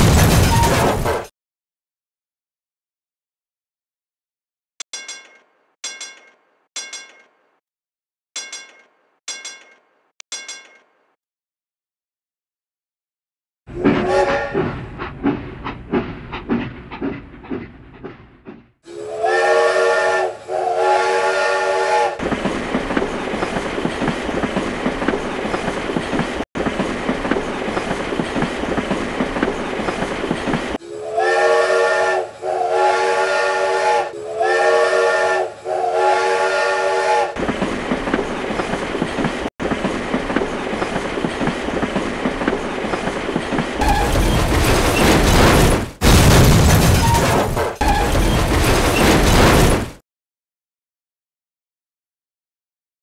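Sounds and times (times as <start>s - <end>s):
train horn blasts: 13.7s - 14.7s, 18.8s - 22.2s, 30.8s - 37.4s
train wheels clacking on rails: 13.8s - 18.7s, 37.4s - 45.2s.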